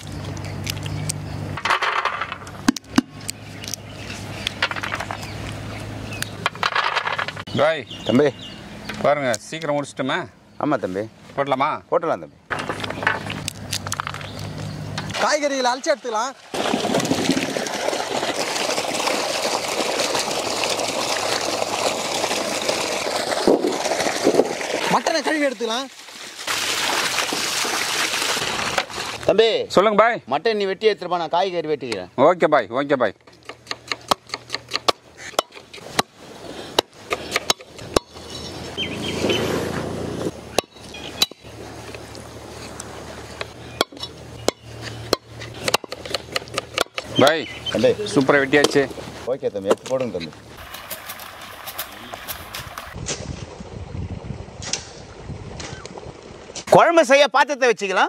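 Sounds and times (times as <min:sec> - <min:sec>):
water running and splashing: 0:14.5 - 0:29.3, 0:35.3 - 0:56.7.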